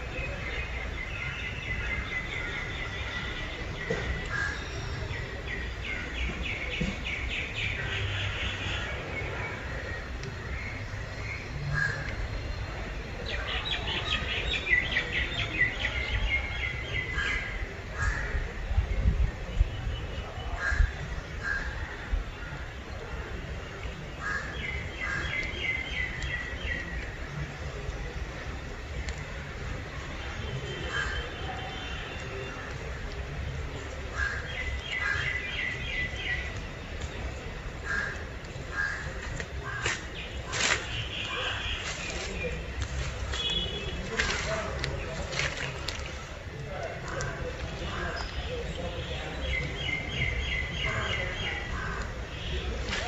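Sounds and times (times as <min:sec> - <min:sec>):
birds chirping: 0:00.0 - 0:18.5, 0:19.4 - 0:53.0
harsh bird calls: 0:29.8 - 0:53.0.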